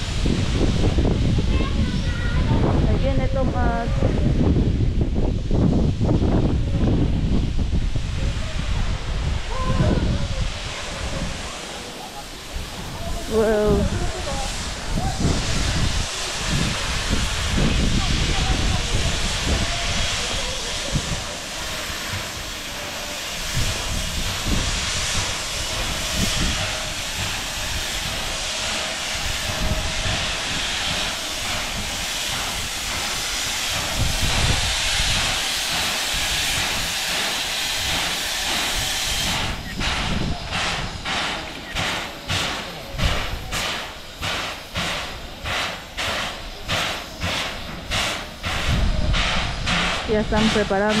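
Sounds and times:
steam locomotive hissing steam: 0:00.0 - 0:51.0
locomotive exhaust chuffs: 0:14.6 - 0:51.0.

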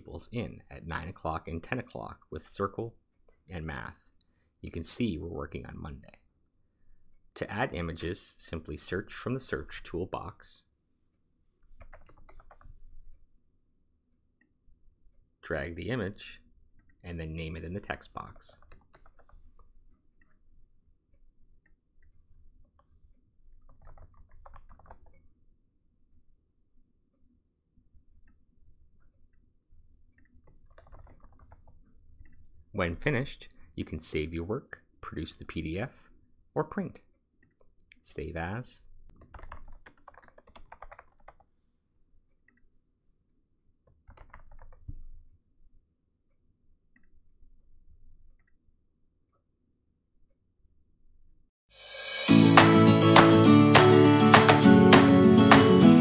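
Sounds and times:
keyboard and mouse clicks: 0:11.6 - 0:13.0, 0:18.2 - 0:20.4, 0:21.6 - 0:25.3, 0:30.1 - 0:32.6, 0:39.1 - 0:41.5, 0:43.8 - 0:45.3.

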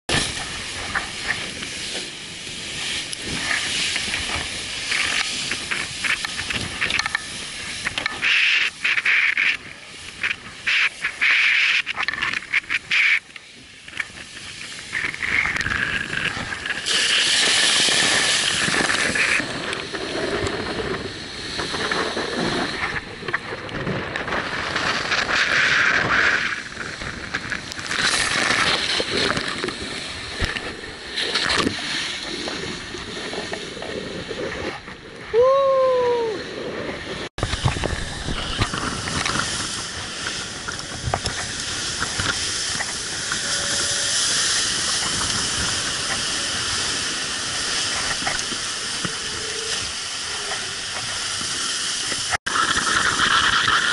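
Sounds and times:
wind buffeting microphone: 0:13.7 - 0:51.6.

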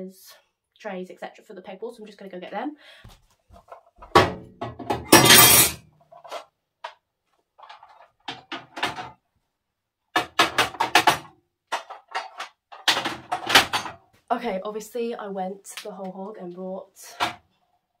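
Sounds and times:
containers clinking on glass shelf: 0:04.7 - 0:05.8.

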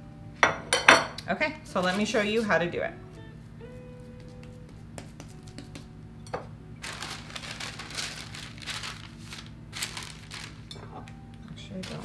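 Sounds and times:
low steady hum: 0:00.0 - 0:12.0
parchment paper rustling: 0:06.8 - 0:11.0, 0:11.8 - 0:12.0.

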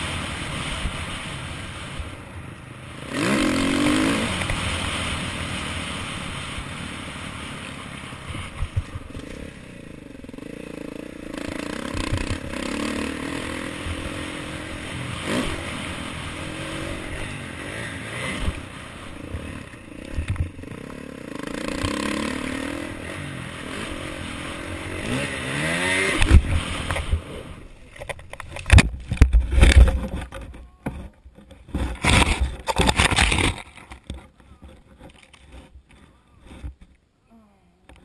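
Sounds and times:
dirt bike engine revving: 0:02.8 - 0:27.9
small rustles: 0:27.8 - 0:37.2
scraping through brush: 0:31.6 - 0:36.9.

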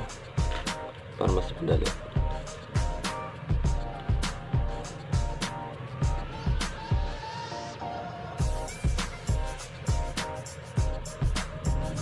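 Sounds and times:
electronic beat music: 0:00.0 - 0:12.0.

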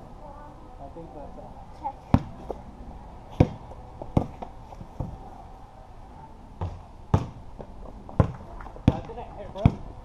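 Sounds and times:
basketball bouncing on hard ground: 0:02.1 - 0:02.6, 0:03.3 - 0:05.2, 0:06.6 - 0:10.0.

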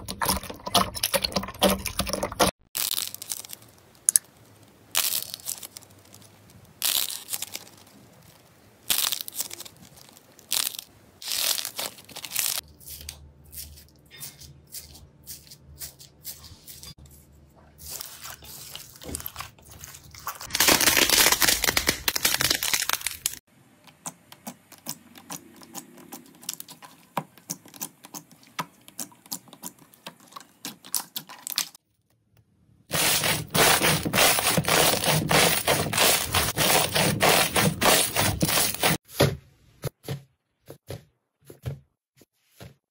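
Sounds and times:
slime crackling: 0:17.9 - 0:23.4.

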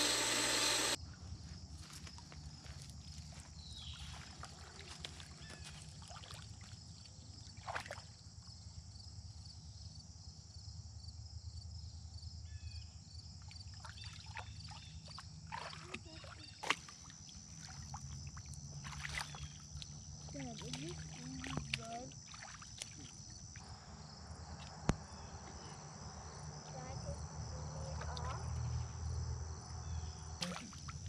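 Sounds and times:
pond water sloshing: 0:03.2 - 0:08.4, 0:13.6 - 0:23.8, 0:30.4 - 0:31.0.

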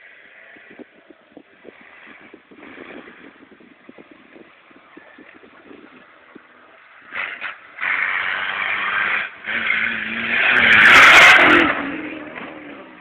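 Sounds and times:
car engine revving: 0:07.0 - 0:13.0.

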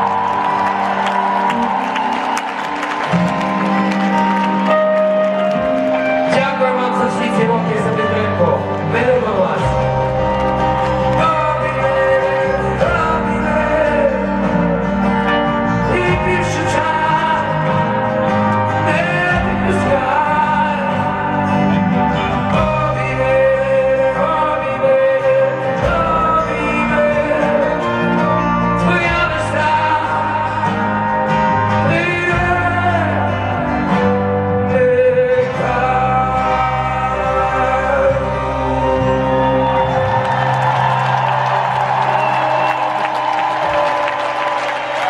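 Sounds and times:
live rock band playing: 0:00.0 - 0:45.0
man singing: 0:06.2 - 0:10.3, 0:11.0 - 0:39.9.

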